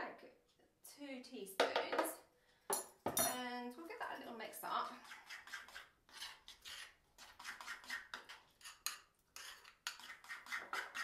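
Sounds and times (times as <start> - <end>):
spoon scraping and clinking bowl: 5.0 - 11.0.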